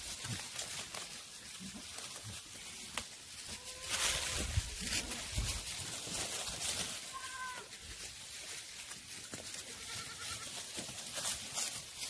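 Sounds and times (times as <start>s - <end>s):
hooves moving through dry leaves: 0.0s - 12.0s
goat bleating: 3.4s - 5.5s, 7.0s - 7.8s, 9.5s - 10.7s.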